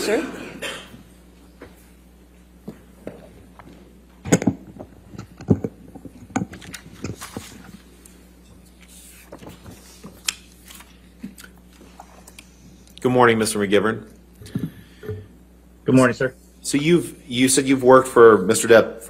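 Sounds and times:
low steady hum: 0.0 - 19.0
objects knocking and clicking: 3.0 - 7.8.

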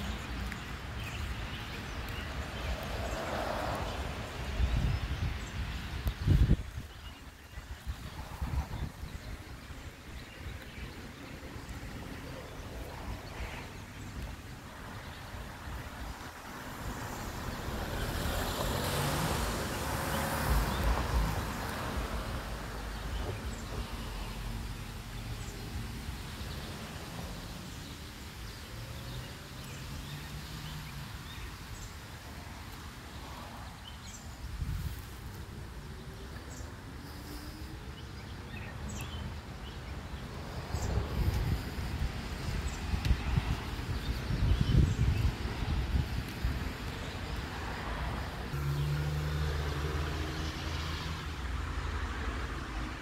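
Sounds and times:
motor vehicle passing: 16.4 - 28.0, 40.6 - 53.0.

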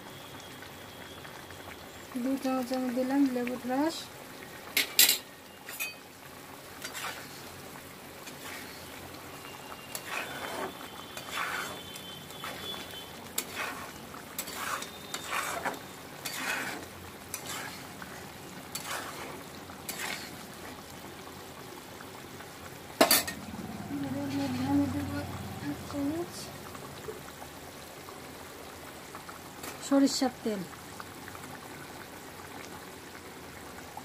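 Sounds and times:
curry bubbling and sizzling: 0.0 - 34.0
steel spoon scraping a pan: 4.8 - 6.0, 6.8 - 7.4, 8.2 - 8.9, 9.9 - 17.9, 18.7 - 20.4.

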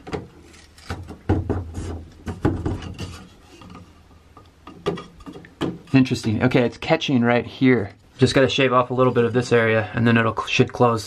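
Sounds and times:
wooden panel knocks and scrapes: 0.0 - 3.9, 4.7 - 6.0.

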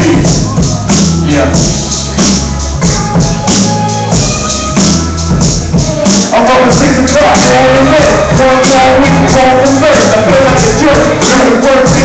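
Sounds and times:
person rapping into a microphone: 0.0 - 1.8, 6.3 - 12.0
hip-hop beat with bass line: 0.0 - 12.0.

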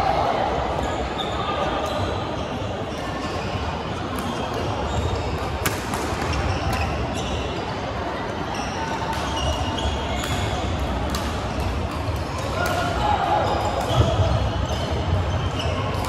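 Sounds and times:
echoing din of other courts: 0.0 - 16.0
shoes squeaking on floor: 6.2 - 7.7.

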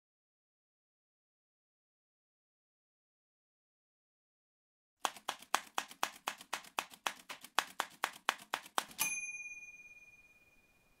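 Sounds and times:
typewriter bell ding: 8.9 - 11.0.

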